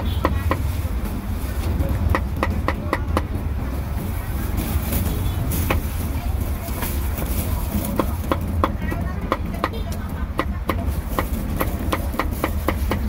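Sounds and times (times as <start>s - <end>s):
cleaver chopping meat on wood: 7.9s - 13.0s.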